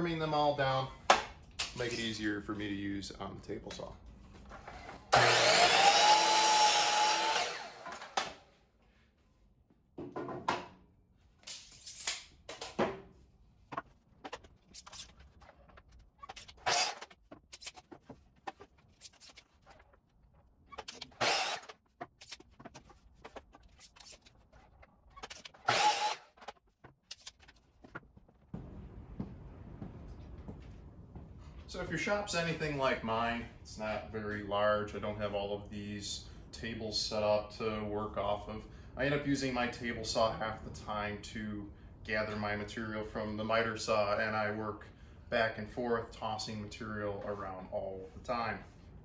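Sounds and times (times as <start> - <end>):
miter saw cutting a board: 5.1 - 8.2, 16.5 - 17.1, 20.8 - 21.8, 25.5 - 26.4.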